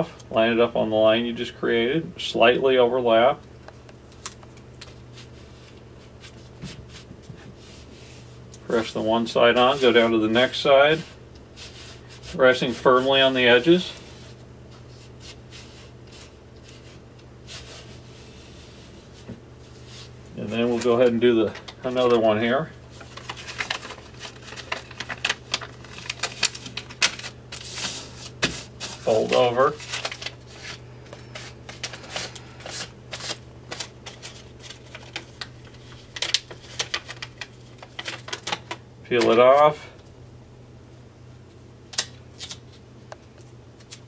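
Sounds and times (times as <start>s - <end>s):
paper tape crackling: 11.6s - 39.7s.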